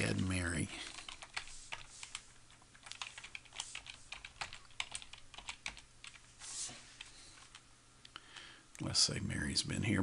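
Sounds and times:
keyboard typing: 0:00.0 - 0:06.3.

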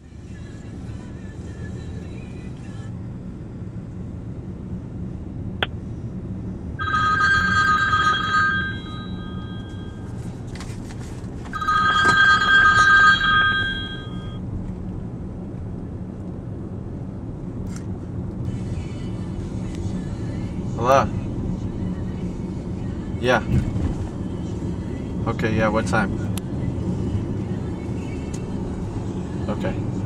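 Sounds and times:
phone ringtone: 0:06.8 - 0:10.2, 0:11.5 - 0:14.4
car cabin hum: 0:06.8 - 0:15.6.

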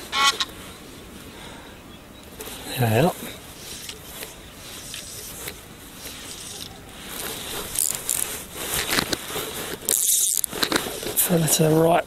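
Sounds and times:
rustling handling noise: 0:02.3 - 0:11.9
scrapes and clicks: 0:03.6 - 0:11.2.

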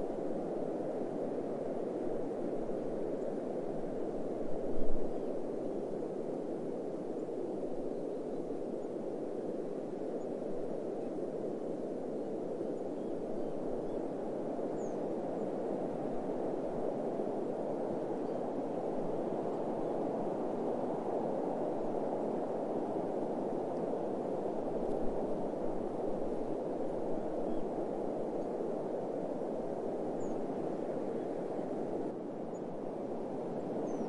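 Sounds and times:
steady low wind: 0:00.0 - 0:34.0.

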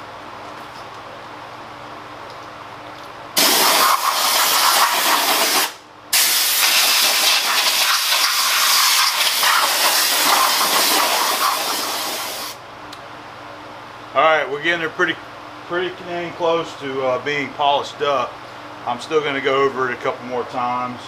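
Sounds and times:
air blow gun hissing: 0:03.4 - 0:12.6.

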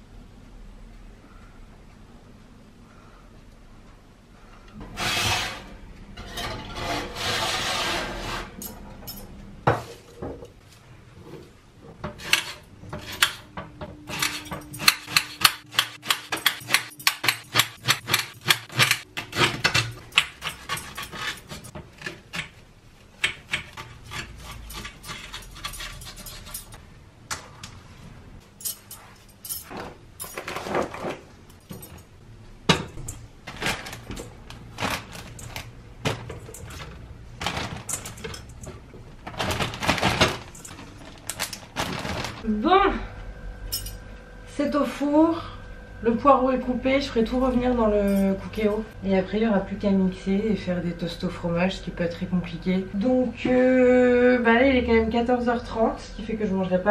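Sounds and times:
baking dish scraping and clattering: 0:04.8 - 0:08.6.

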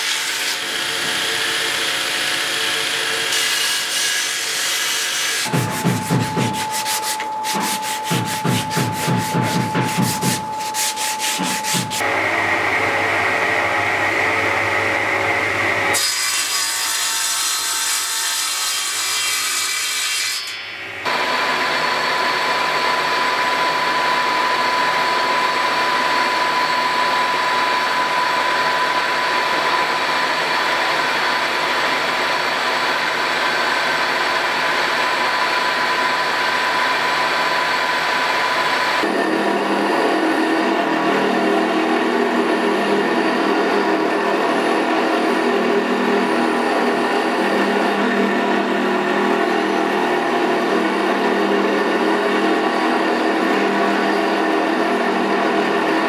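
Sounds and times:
workshop noise: 0:00.0 - 0:35.0
drill press boring into wood: 0:00.5 - 0:03.7
hand sanding wood: 0:05.2 - 0:12.0.

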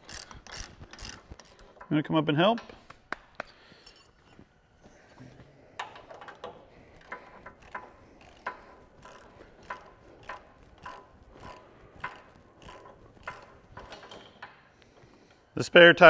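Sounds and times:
socket ratchet clicking: 0:00.0 - 0:01.6, 0:06.4 - 0:14.3.

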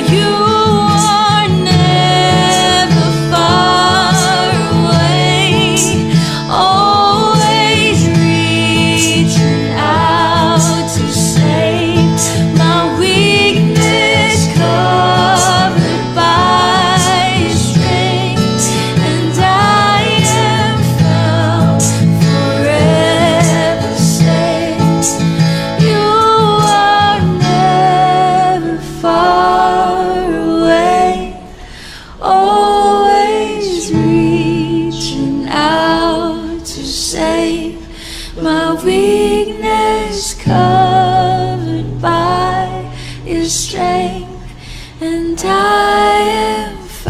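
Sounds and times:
accompanying instruments: 0:00.0 - 0:31.7
woman singing with vibrato: 0:00.0 - 0:47.0
long-held bass notes: 0:07.8 - 0:26.3.

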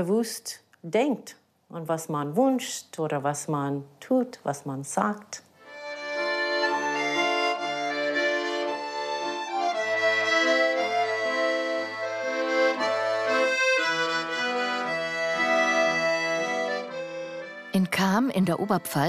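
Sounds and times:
accordion oom-pah music: 0:05.6 - 0:19.0.

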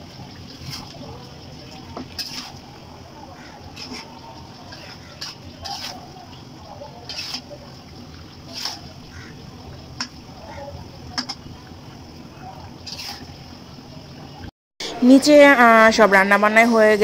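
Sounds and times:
wet sloshing of curry: 0:00.0 - 0:13.6
spatula scraping and clinking a wok: 0:02.0 - 0:02.6, 0:03.6 - 0:06.4, 0:07.0 - 0:07.7, 0:08.4 - 0:09.1, 0:12.8 - 0:13.3.

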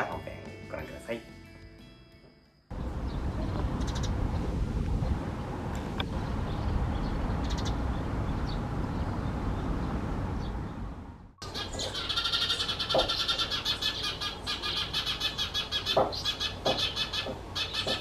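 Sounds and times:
faint sparrow chirps: 0:02.7 - 0:04.2, 0:06.1 - 0:10.8, 0:11.4 - 0:18.0
buzzy sparrow alarm call: 0:03.0 - 0:04.2, 0:06.5 - 0:08.6, 0:11.4 - 0:18.0.

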